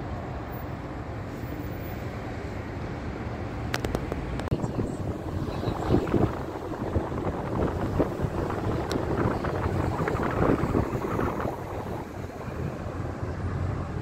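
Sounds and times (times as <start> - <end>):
car driving rumble: 0.0 - 14.0
wind noise on microphone: 3.6 - 14.0.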